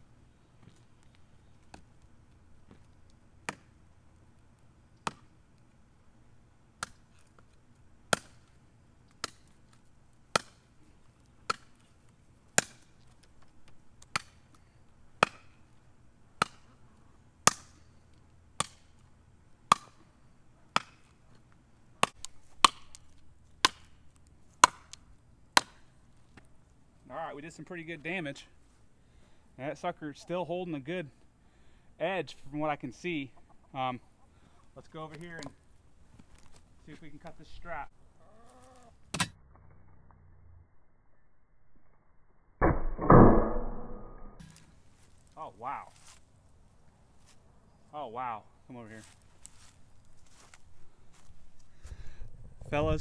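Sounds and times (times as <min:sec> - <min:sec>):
knife chopping wood: 0:03.4 - 0:03.7, 0:05.0 - 0:05.3, 0:06.8 - 0:07.0, 0:08.1 - 0:08.4, 0:10.3 - 0:10.6, 0:11.4 - 0:11.7, 0:12.6 - 0:12.8, 0:14.1 - 0:14.4, 0:15.2 - 0:15.5, 0:16.4 - 0:16.7, 0:17.4 - 0:17.8, 0:18.6 - 0:18.9, 0:19.7 - 0:20.0, 0:20.7 - 0:21.1, 0:22.0 - 0:24.0, 0:24.6 - 0:25.0, 0:25.6 - 0:25.8.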